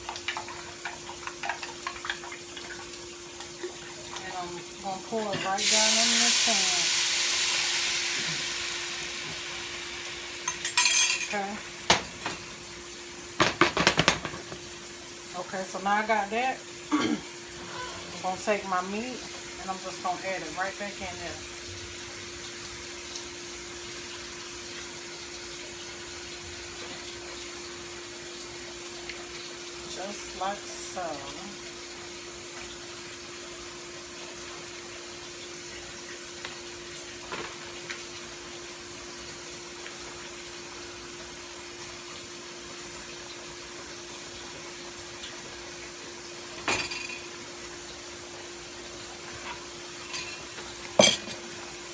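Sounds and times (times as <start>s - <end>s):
broth simmering in a pan: 0.0s - 51.9s
kitchenware clanking against pan: 10.5s - 12.4s, 46.6s - 47.3s, 49.4s - 51.5s.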